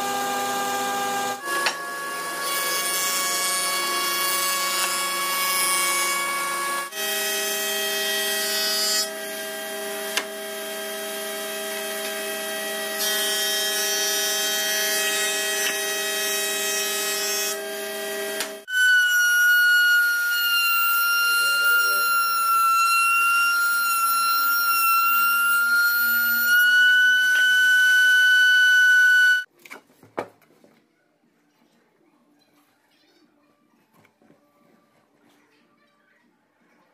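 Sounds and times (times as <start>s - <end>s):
table saw whine: 0.0s - 29.5s
wood planer whining: 0.0s - 29.5s.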